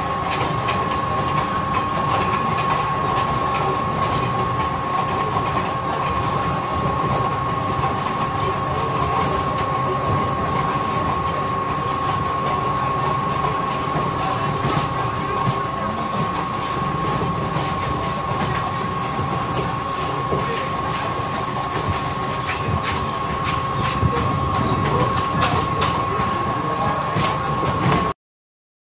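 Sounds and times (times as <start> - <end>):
train rumble: 0.0 - 28.1.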